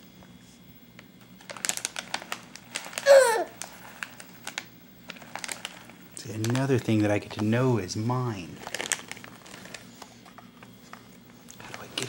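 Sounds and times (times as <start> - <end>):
foil pouch rustling: 1.4 - 12.0
baby babbling: 3.0 - 3.5.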